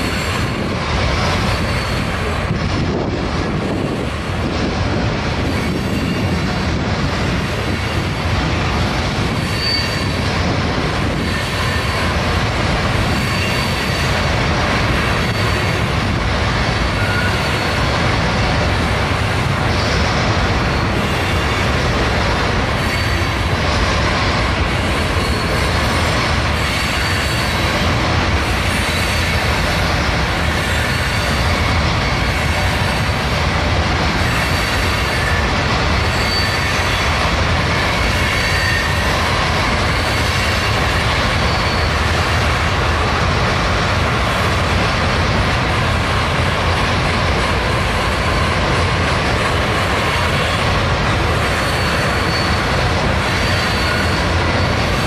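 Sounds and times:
train wheels rumbling on rail: 0.0 - 55.0
faint high wheel squeals: 9.4 - 10.2, 16.9 - 17.8, 22.8 - 23.8, 36.0 - 37.1, 38.1 - 40.6, 41.3 - 42.2, 51.5 - 55.0.

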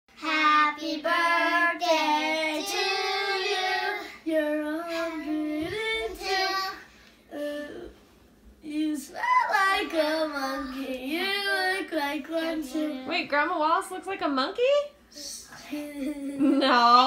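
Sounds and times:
young children singing: 0.2 - 6.9.

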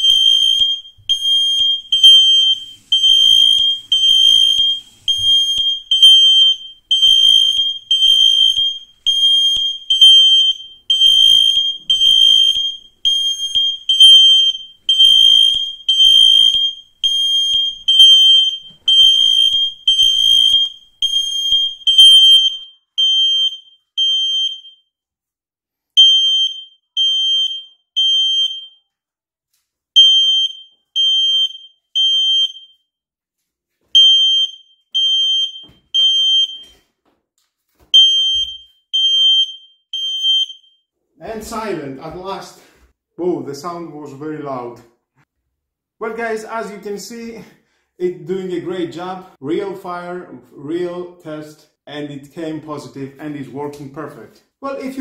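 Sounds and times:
smoke alarms beeping: 0.0 - 24.9, 26.0 - 28.8, 30.0 - 32.8, 33.9 - 36.8, 37.9 - 40.8.

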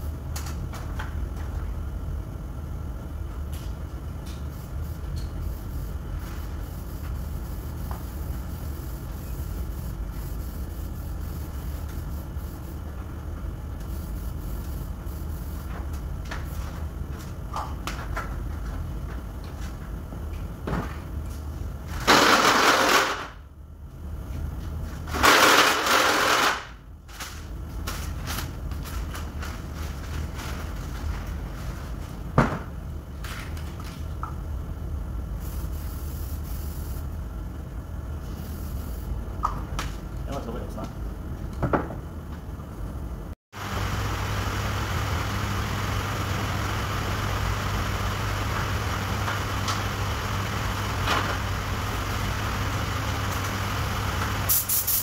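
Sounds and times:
steady low hum: 0.0 - 22.6, 26.8 - 54.7
loud hissing bursts: 51.8 - 55.0.

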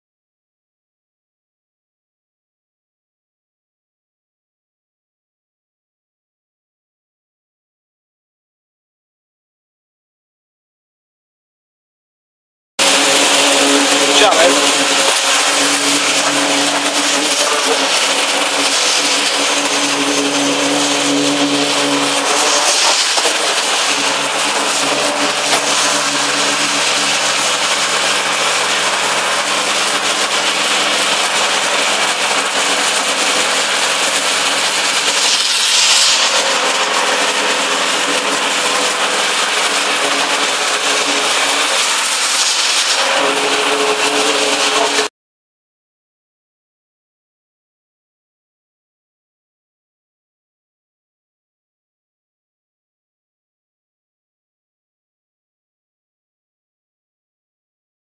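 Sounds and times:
concrete pump machine noise: 12.8 - 45.1.

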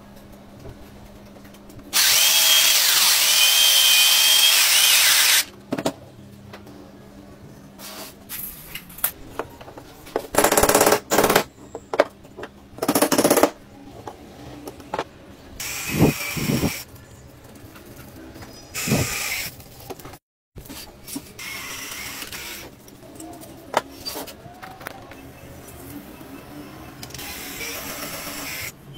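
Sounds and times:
power tool cutting wood: 2.0 - 5.5, 27.2 - 28.7.

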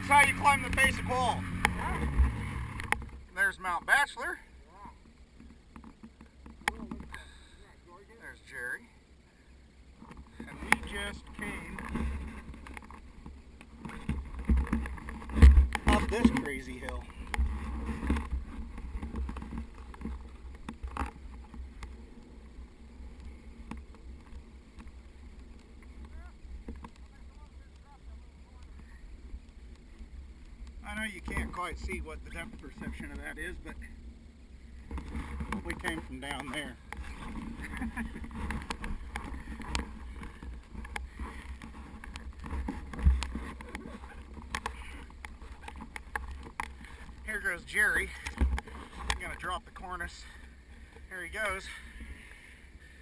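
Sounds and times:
snowmobile engine idling: 0.0 - 5.0, 10.3 - 53.0
faint clicks: 10.0 - 33.9, 34.8 - 53.0
wind buffeting camera: 34.8 - 49.4.

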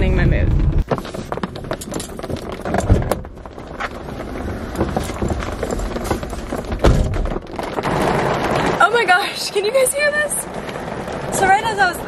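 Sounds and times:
heavy rain on a car: 3.5 - 12.0
loud knocks: 6.1 - 7.9.

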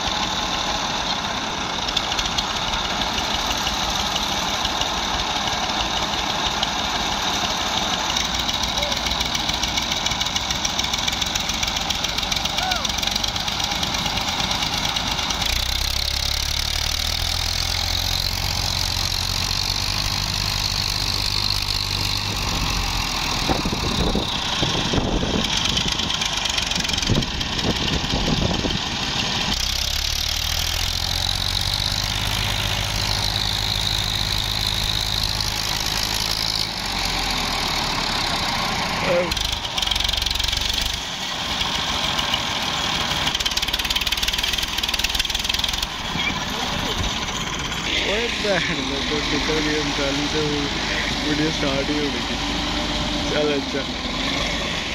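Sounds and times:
tractor diesel engine droning: 0.0 - 54.9.

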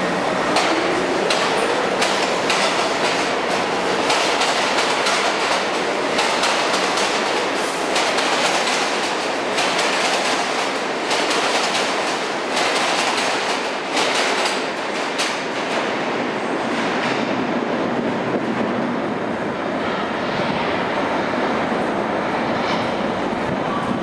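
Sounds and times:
steel wheels rushing on rail: 0.0 - 24.0
wheels clacking over rail joints: 0.5 - 15.8.

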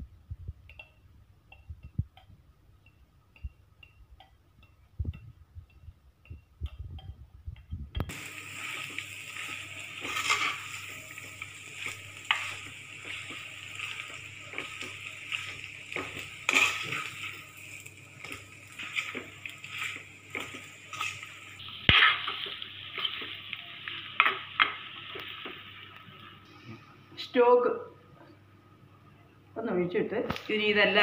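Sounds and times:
frying hiss: 4.6 - 27.4.

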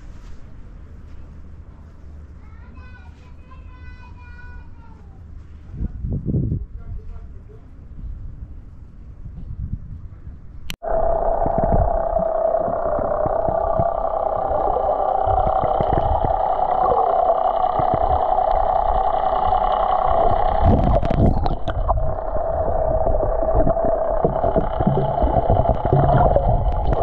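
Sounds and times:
boat engine drone underwater: 10.8 - 27.0
bubbling water: 10.8 - 27.0.

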